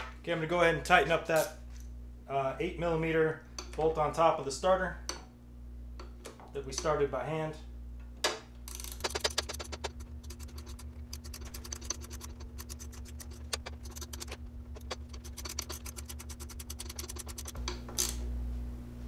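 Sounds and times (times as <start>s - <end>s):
ratchet wrench clicking: 8.7s - 18.2s.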